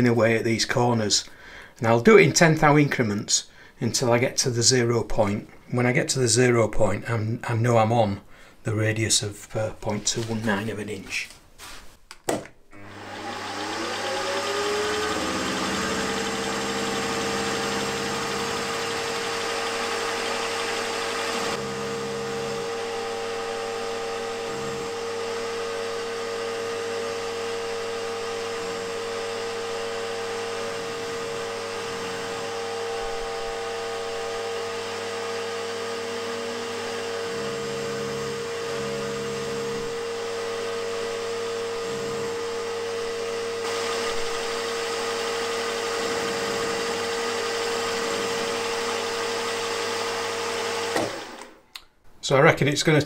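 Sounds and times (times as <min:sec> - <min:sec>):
end mill cutting metal: 0:12.8 - 0:51.6
milling machine motor whine: 0:12.8 - 0:51.6.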